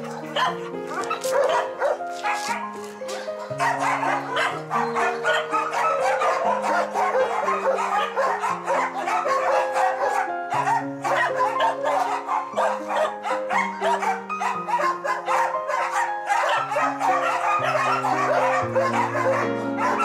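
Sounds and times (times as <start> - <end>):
many dogs barking: 0.0 - 20.0.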